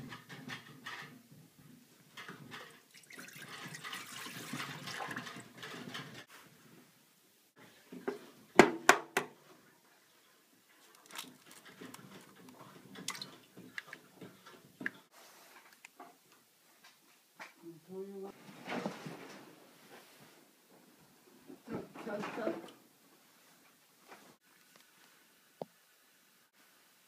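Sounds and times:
clicks and rustles of handling: 0:10.6 - 0:17.6.

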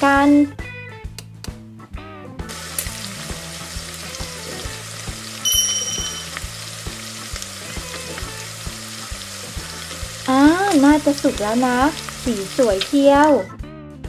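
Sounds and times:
oil sizzling: 0:02.4 - 0:13.5
short bright chime: 0:05.4 - 0:06.5.

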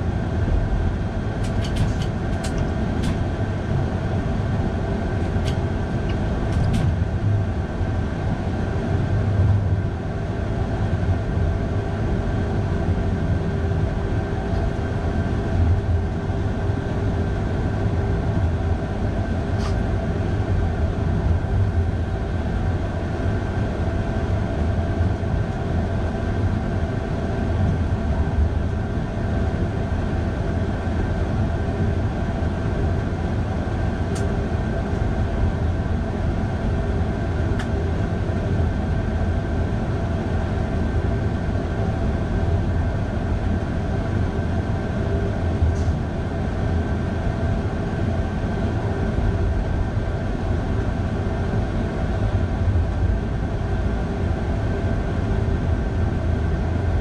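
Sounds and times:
train rumbling: 0:00.8 - 0:07.4.

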